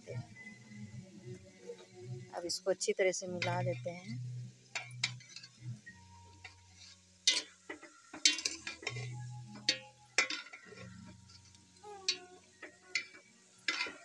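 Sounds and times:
spoon scraping metal pot: 4.7 - 5.6, 6.4 - 14.0.

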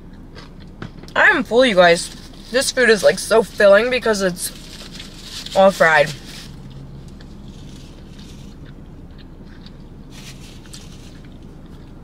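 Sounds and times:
chewing fried food: 0.0 - 0.8, 2.0 - 12.0.

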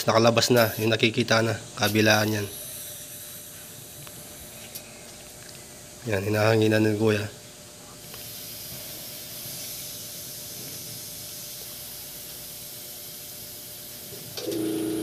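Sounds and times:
steady hum: 0.0 - 15.0
compressed air hissing: 1.6 - 4.9, 8.0 - 14.4.

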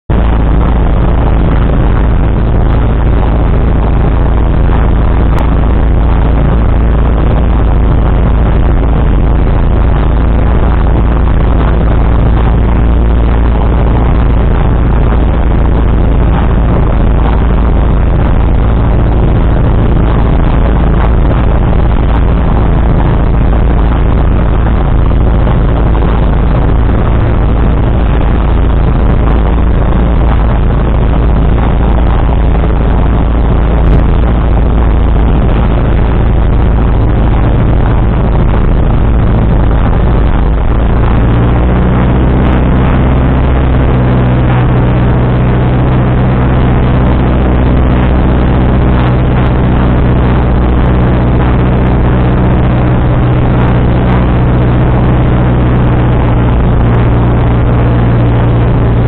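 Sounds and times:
propeller aircraft engine running: 0.0 - 59.0.

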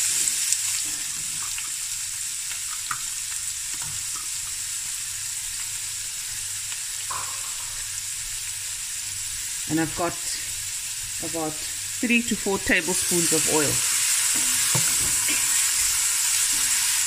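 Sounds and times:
onion sizzling in hot oil: 0.0 - 17.0.

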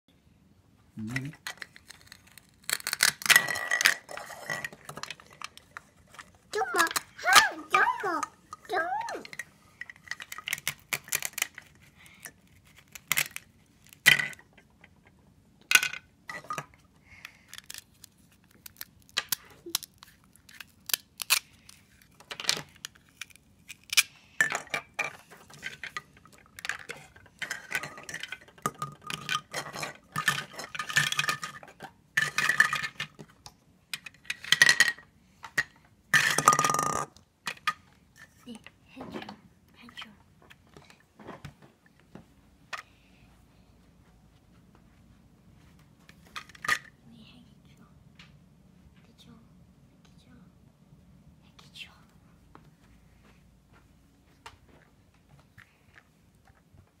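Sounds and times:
plastic toy pieces clacking: 1.0 - 15.0, 17.5 - 38.6, 46.4 - 46.9.

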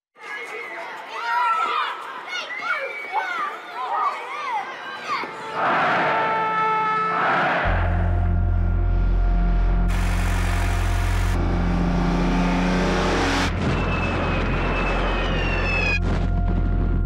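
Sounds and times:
low music drone: 6.6 - 17.0
tank engines rumbling: 7.7 - 17.0
falling bomb whistle: 13.0 - 17.0.

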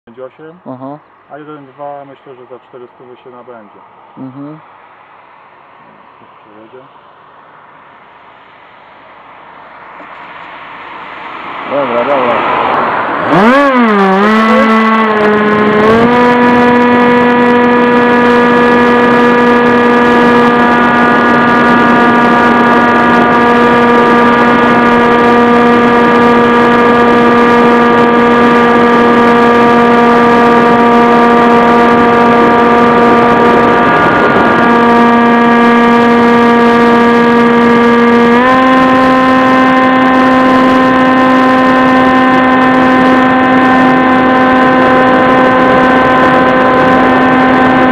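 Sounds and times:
model aircraft motor and propeller: 13.3 - 47.9.

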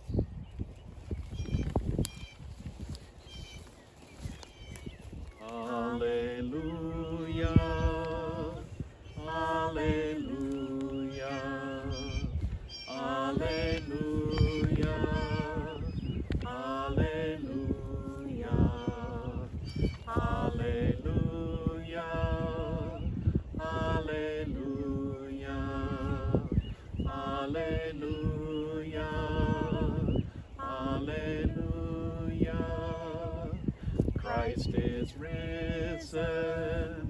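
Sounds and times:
man and woman singing: 5.4 - 37.0
singers breathing: 33.7 - 34.1.

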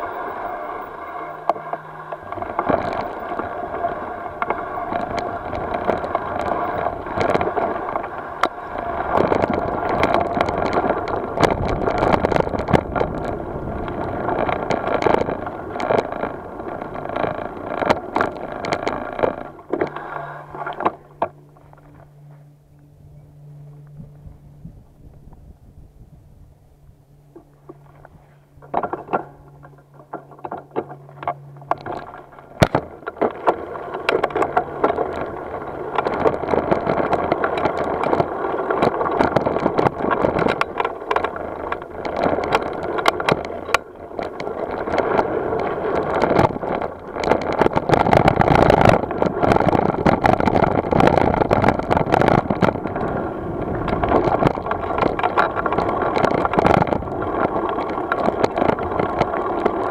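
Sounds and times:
bike rattling and knocking: 0.0 - 22.6, 27.3 - 59.9
tyres crunching over gravel: 0.0 - 22.6, 27.6 - 59.9.

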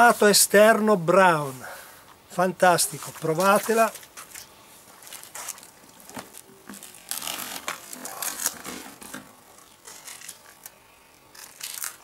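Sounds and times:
objects rustling and scraping: 2.9 - 10.8.

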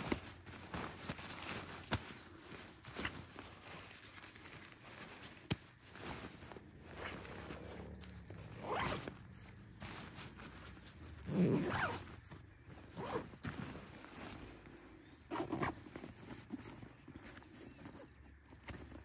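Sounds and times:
backpack zipper being pulled: 6.1 - 10.4, 11.1 - 12.2, 12.8 - 14.4, 15.3 - 16.1.

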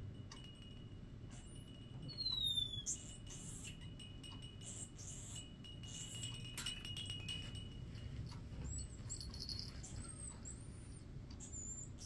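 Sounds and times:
parrot chirping: 2.1 - 4.0.

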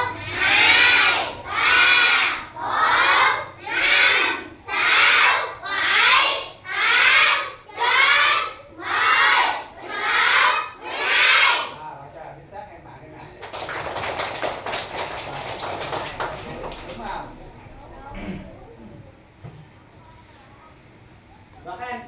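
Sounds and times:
children counting aloud in unison: 0.0 - 11.8.

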